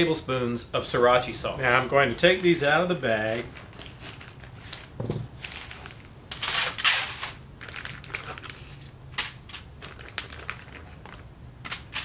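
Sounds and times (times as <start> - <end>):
plastic bag and foil crinkling: 1.6 - 12.0.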